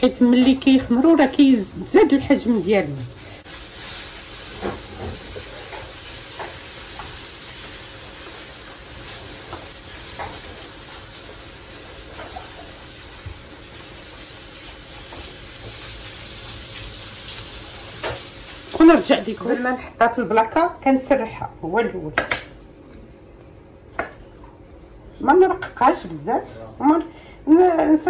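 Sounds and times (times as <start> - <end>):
steady hiss: 2.0 - 19.6
dough tapping on countertop: 22.2 - 22.5.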